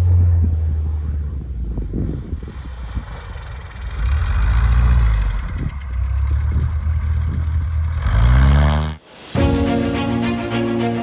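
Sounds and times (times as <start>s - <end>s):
light aircraft engine and propeller: 0.3s - 8.0s.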